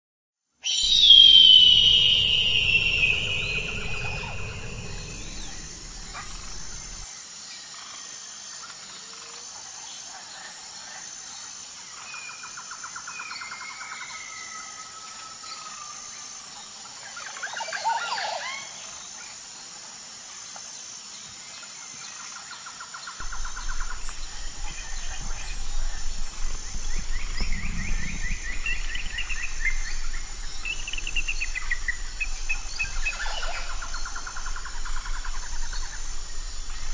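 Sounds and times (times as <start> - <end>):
bird chirps and trills: 0.7 - 7.0
high insect buzz: 0.7 - 7.1, 23.2 - 36.9
low rumble: 0.8 - 7.0, 23.2 - 36.9.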